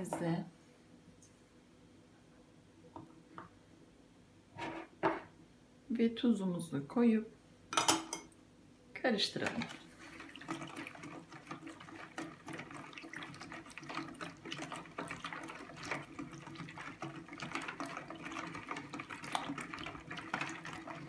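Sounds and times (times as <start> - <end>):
wire whisk beating batter: 9.5 - 21.0.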